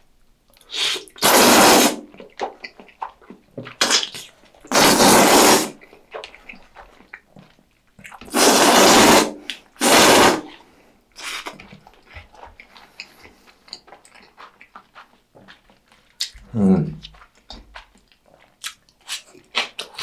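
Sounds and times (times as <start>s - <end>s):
noodles slurped loudly: 0.6s - 6.6s, 8.1s - 10.6s
wet chewing clicks: 2.0s - 4.8s, 5.7s - 8.4s, 11.2s - 20.0s.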